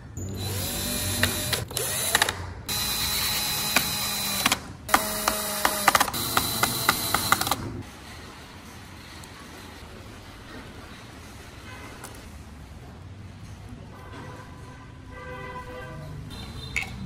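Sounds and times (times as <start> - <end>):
drill motor driving screws: 0.3 - 7.6
sharp drill clicks: 0.4 - 7.6.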